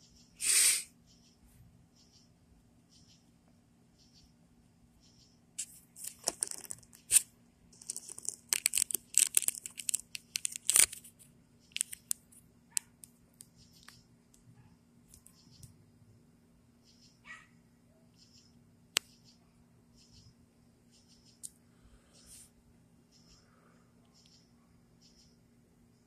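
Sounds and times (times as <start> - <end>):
rustling and scraping handling noise: 5.6 - 12.5
faint low hum: 9.8 - 26.0.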